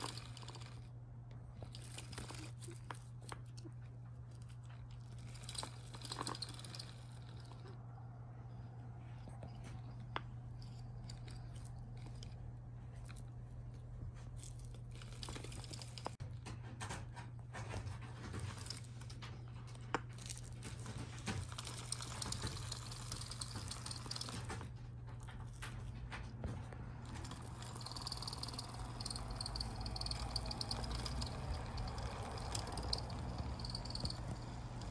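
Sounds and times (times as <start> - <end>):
kittens pattering and scratching: 0.0 - 34.9.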